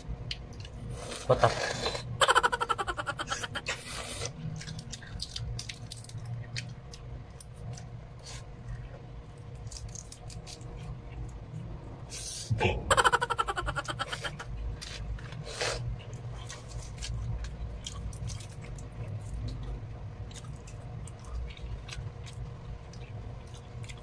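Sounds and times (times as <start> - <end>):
low steady hum: 0.0 - 24.0.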